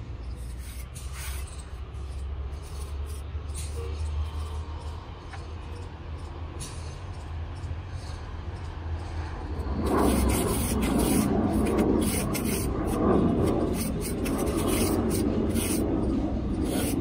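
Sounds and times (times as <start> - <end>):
steel trowel scraping cement: 0.3 - 1.7, 2.6 - 3.9, 9.8 - 17.0.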